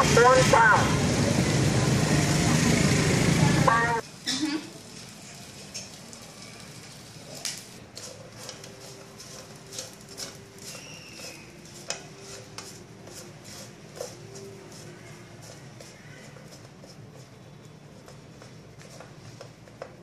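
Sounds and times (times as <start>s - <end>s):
sausage frying in oil: 4.8s - 12.5s
wooden spatula scraping pan: 7.8s - 19.5s.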